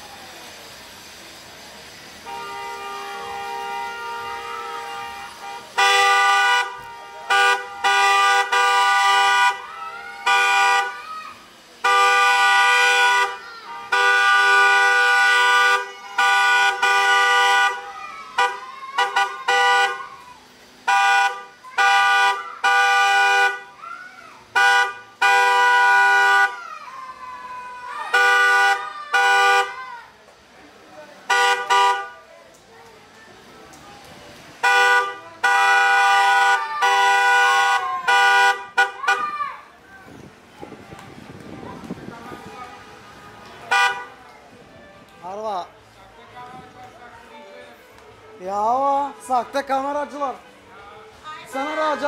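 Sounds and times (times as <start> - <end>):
vehicle horns honking: 2.2 - 11.0, 11.8 - 20.1, 20.8 - 23.8, 24.5 - 26.6, 27.7 - 29.8, 31.2 - 32.3, 34.6 - 39.3, 43.6 - 44.2.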